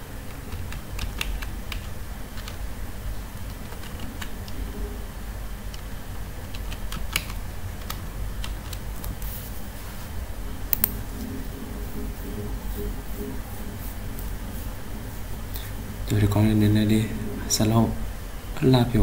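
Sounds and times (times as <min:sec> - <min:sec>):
low steady hum: 0:00.0 - 0:19.0
typing on computer keyboard: 0:00.3 - 0:02.6, 0:03.4 - 0:04.6, 0:06.5 - 0:08.8.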